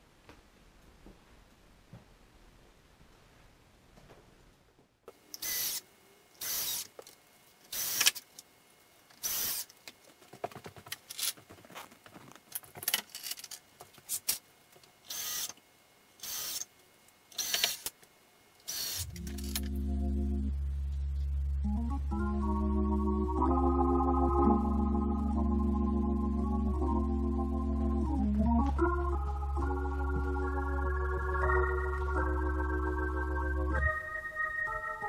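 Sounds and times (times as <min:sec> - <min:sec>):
organ-like music chord: 0:19.1 - 0:35.0.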